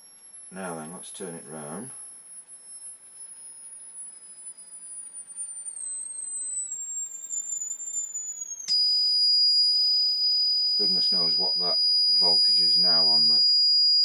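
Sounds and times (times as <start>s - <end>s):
fainter lower tone: 0.0s - 14.0s
high-pitched oscillator whine: 0.0s - 14.0s.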